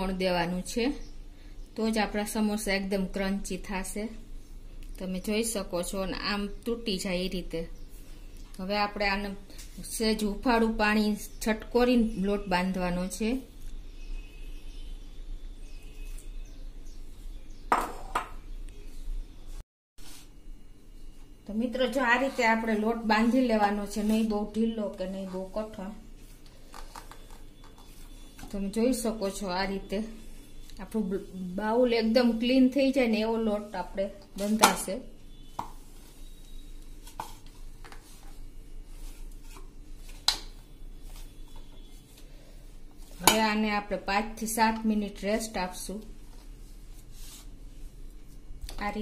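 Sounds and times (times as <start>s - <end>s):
hand mixing flour rustle: 18.9s - 26.7s, 27.4s - 49.0s.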